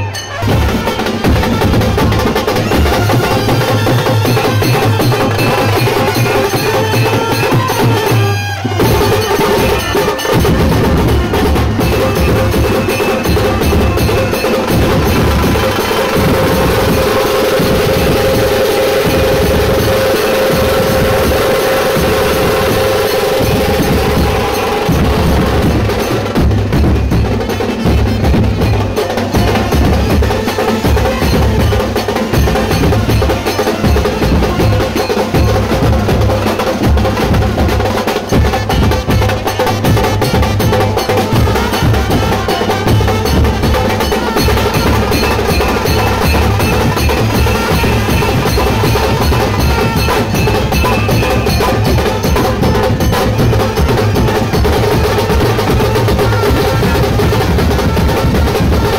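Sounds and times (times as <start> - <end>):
hand drums beaten: 0.0 - 58.9
trumpets and saxophones melody: 0.0 - 58.9.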